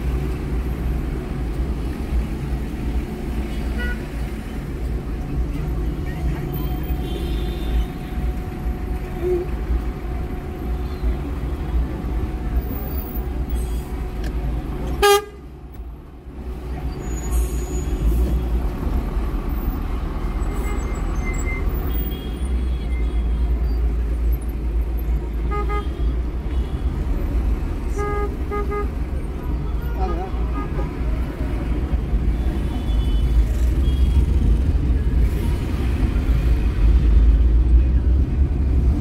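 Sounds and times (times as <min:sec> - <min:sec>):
car road and engine rumble: 0:00.0 - 0:39.0
car horns tooting: 0:15.0 - 0:15.4, 0:25.4 - 0:26.8, 0:27.9 - 0:29.0.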